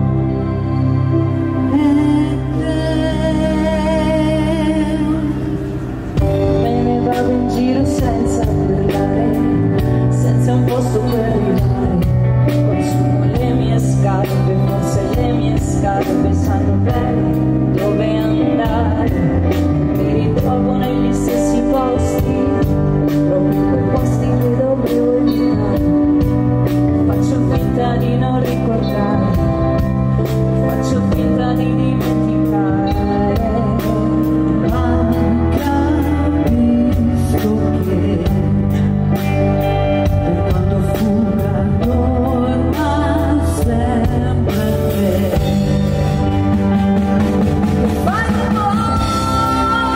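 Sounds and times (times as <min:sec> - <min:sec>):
live pop band playing: 0:00.0 - 0:49.9
women singing: 0:01.7 - 0:05.5, 0:06.4 - 0:26.2, 0:30.7 - 0:38.6, 0:40.1 - 0:45.7, 0:48.0 - 0:49.9.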